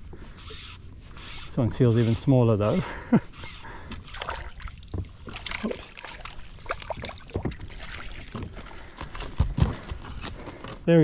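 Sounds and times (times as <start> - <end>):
water splashing: 3.9 - 8.8
small knocks and rattles: 8.3 - 11.0.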